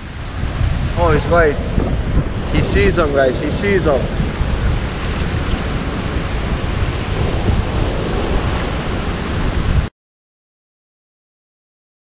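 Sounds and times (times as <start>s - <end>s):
wind buffeting microphone: 0.0s - 9.9s
surf breaking on rocks: 0.9s - 9.9s.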